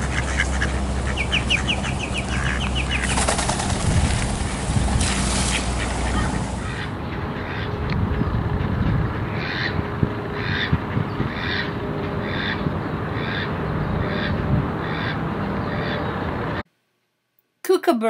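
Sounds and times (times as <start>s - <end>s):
duck quacking: 0.0s - 3.5s, 4.4s - 7.8s, 8.6s - 9.8s, 10.4s - 15.2s
background noise: 16.7s - 18.0s.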